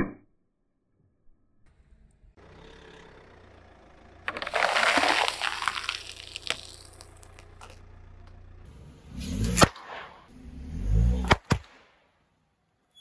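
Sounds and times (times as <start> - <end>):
tyre crushing foam and pretzels: 4.3 - 7.8.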